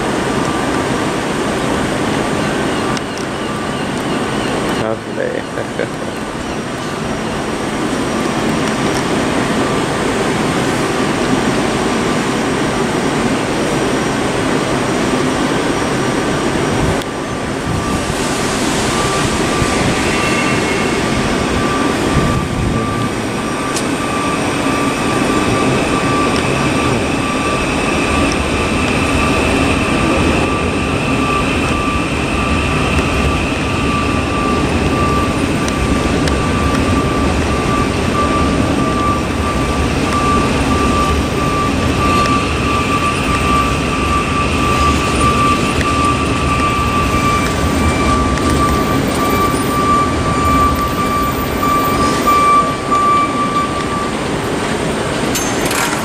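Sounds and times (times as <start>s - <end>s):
high electrical whine: 0.0s - 56.0s
train rumbling hum: 0.0s - 56.0s
second higher whine: 16.6s - 54.6s.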